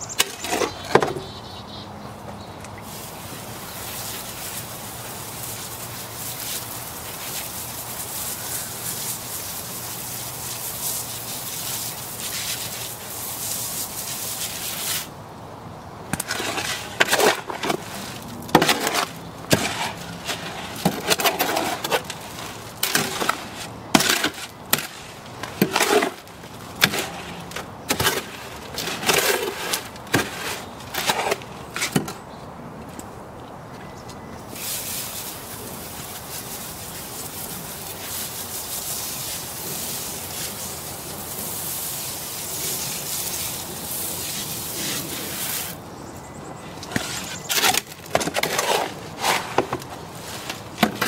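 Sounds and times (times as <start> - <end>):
shovel scraping wet concrete: 0.2 - 1.3, 2.8 - 15.1, 16.1 - 32.1, 34.5 - 45.8, 46.8 - 51.0
hose spraying water: 2.8 - 15.1, 34.5 - 45.8.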